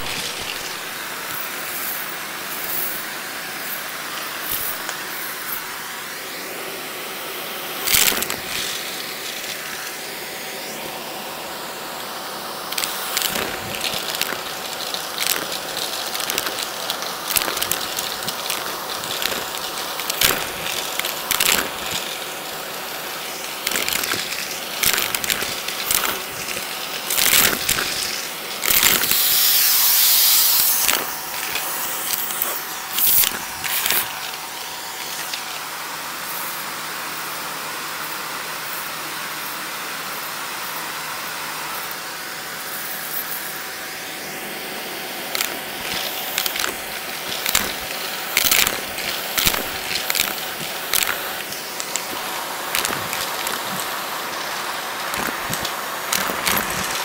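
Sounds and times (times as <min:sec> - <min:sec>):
coins rattling into vacuum nozzle: 0:00.0 - 0:05.8, 0:07.7 - 0:10.8, 0:12.6 - 0:35.5, 0:45.2 - 0:57.0
handheld vacuum cleaner running: 0:00.0 - 0:38.9, 0:39.8 - 0:57.0.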